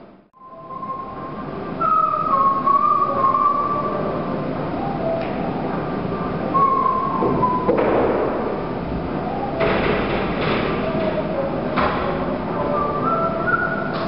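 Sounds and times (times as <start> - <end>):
person whistling a slow tune: 0.4 - 4.2, 6.5 - 7.7, 12.6 - 14.0.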